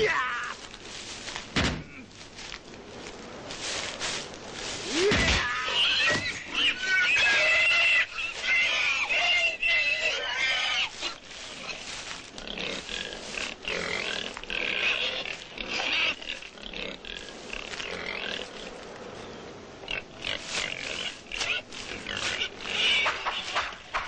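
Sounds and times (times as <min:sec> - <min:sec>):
pig squealing and grunting: 0:04.9 - 0:18.7, 0:19.9 - 0:24.0.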